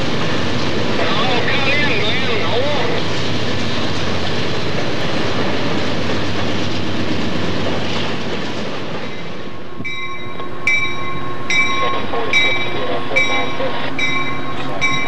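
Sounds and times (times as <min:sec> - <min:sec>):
freight train wheel and rail noise: 0:00.0 - 0:15.0
locomotive bell ringing: 0:09.8 - 0:15.0.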